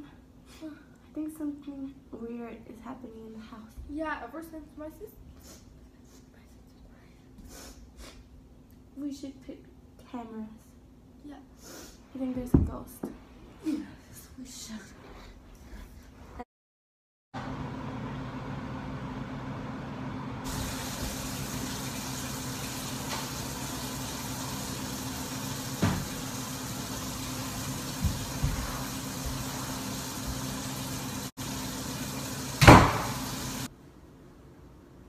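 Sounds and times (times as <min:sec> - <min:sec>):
low hum with hiss: 0:00.0 - 0:16.4
loud thump: 0:32.6 - 0:33.2.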